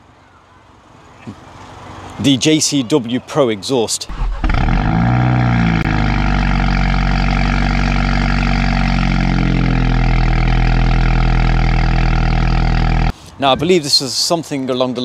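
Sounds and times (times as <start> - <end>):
car engine starting and idling: 4.0 - 13.1.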